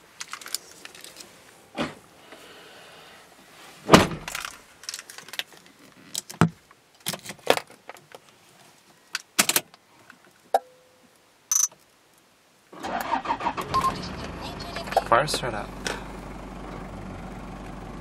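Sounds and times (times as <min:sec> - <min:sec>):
diesel engine cranking and starting: 0:12.8 - 0:18.0.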